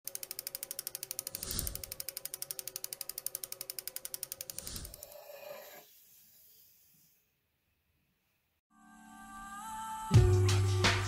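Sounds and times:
rapid ratchet clicking: 0:00.0 - 0:05.2.

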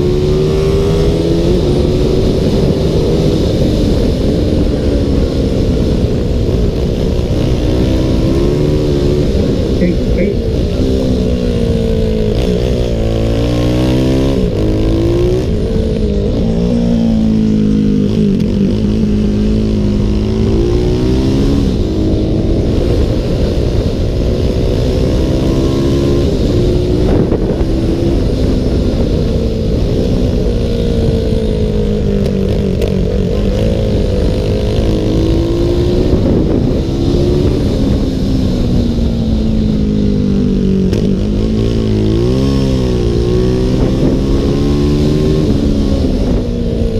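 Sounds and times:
motorcycle engine at racing speed: 0:00.0 - 0:46.9.

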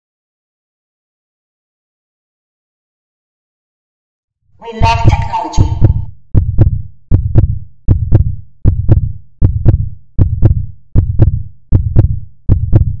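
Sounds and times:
heartbeat-like double thumps: 0:04.8 - 0:13.0.

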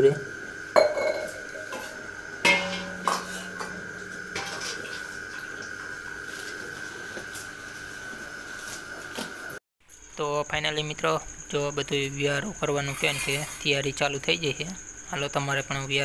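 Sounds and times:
high insect trill: 0:00.0 - 0:16.0
steel dishes clinking: 0:00.8 - 0:05.0.

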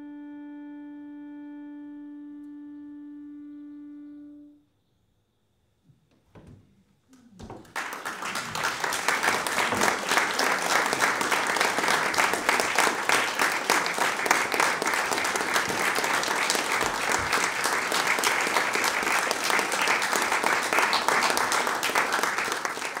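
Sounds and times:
audience applauding: 0:07.2 - 0:23.0.

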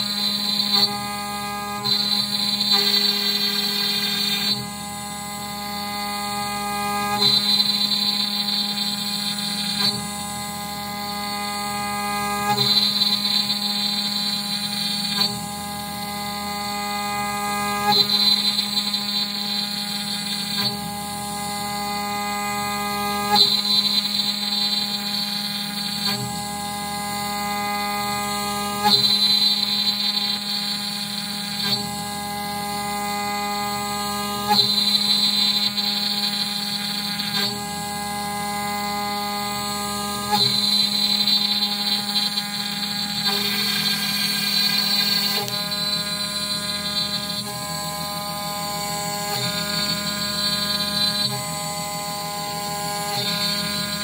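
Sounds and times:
bit cutting wood: 0:00.0 - 0:54.0
router spindle whine: 0:00.0 - 0:54.0.

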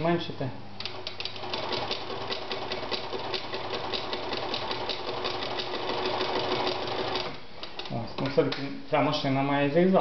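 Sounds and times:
sewing machine motor humming: 0:00.8 - 0:07.4.

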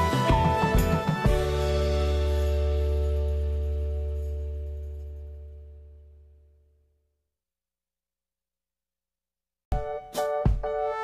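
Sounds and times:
keyboard melody over a beat: 0:00.0 - 0:03.1, 0:09.7 - 0:11.0.

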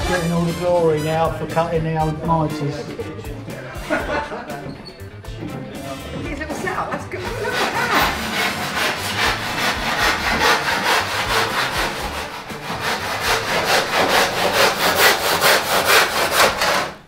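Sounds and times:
hand saw cutting: 0:07.2 - 0:17.0.

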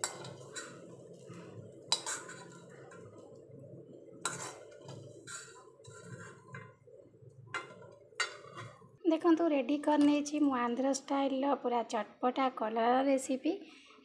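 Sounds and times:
spoon clinking against metal pan: 0:07.6 - 0:08.8.

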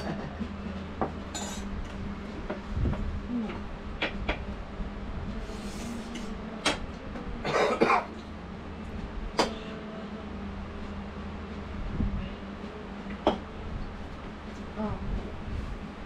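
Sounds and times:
low hum: 0:00.0 - 0:16.0
person coughing: 0:07.4 - 0:08.1.

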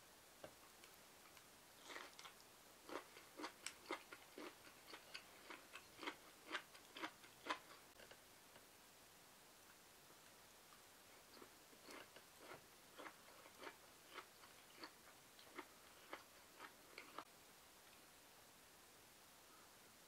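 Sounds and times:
person chewing crisp food: 0:01.3 - 0:08.2, 0:11.2 - 0:17.2.

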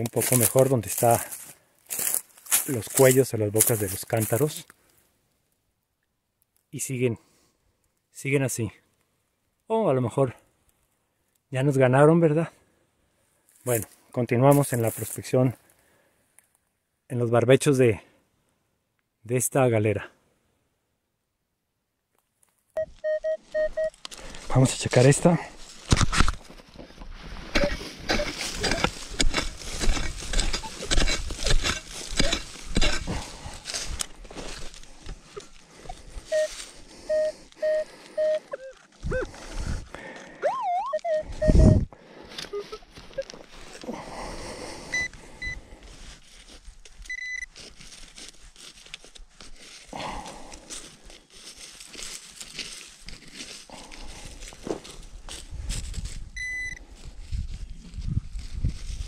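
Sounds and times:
dry soil being dug by hand: 0:00.0 - 0:05.0, 0:13.5 - 0:15.7, 0:23.0 - 0:59.0
metal detector beeps: 0:22.8 - 0:24.0, 0:27.5 - 0:28.9, 0:30.4 - 0:30.9, 0:35.3 - 0:39.4, 0:40.4 - 0:43.4, 0:44.9 - 0:45.6, 0:47.1 - 0:47.5, 0:56.4 - 0:56.8
shovel scraping into hard soil: 0:27.2 - 0:34.9.

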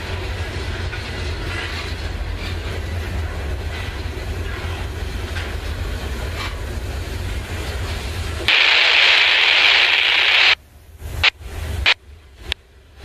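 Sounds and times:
train cars rolling past: 0:00.0 - 0:08.6
radio scanner static hiss: 0:08.5 - 0:10.6.

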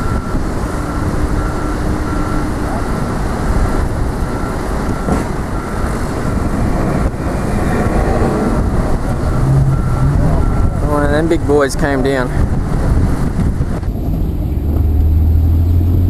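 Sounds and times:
reversing alarm beeping: 0:00.0 - 0:12.3
low machinery rumble: 0:00.0 - 0:16.0.

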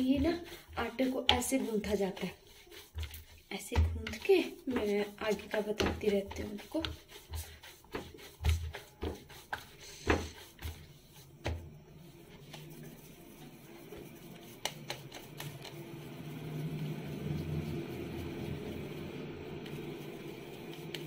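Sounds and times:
dough thumps and knocks: 0:00.0 - 0:11.8, 0:12.4 - 0:15.8
hands patting dough: 0:00.0 - 0:21.0.

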